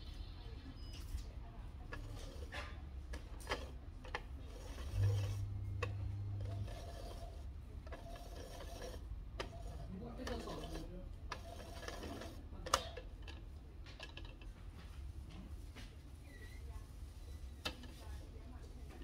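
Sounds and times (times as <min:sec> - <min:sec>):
plastic toy clicks and knocks: 0:11.3 - 0:14.5.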